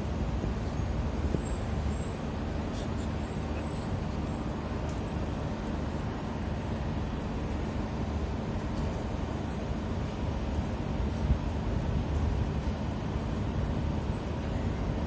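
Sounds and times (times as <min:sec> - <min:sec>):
faint ticks and rustles: 0:06.9 - 0:14.6.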